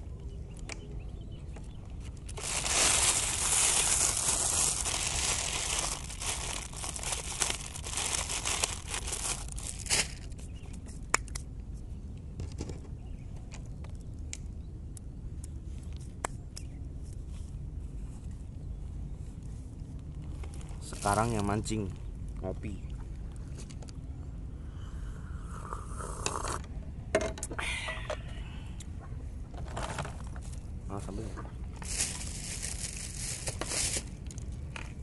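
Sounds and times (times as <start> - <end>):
steady low rumble: 0.0 - 26.0
plastic bag crinkling: 2.2 - 10.4, 31.8 - 34.1.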